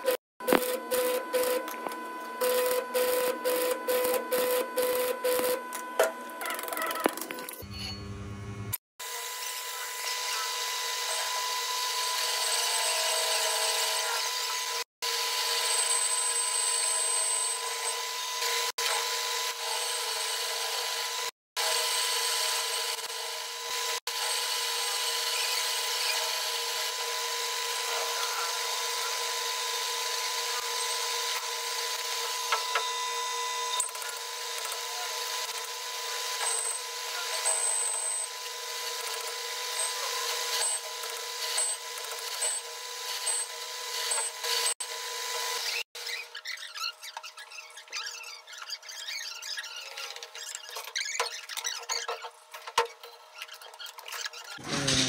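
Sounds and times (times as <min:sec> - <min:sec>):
metal lathe whine: 0:09.0 - 0:45.8
cutting tool scraping steel: 0:53.3 - 0:55.0.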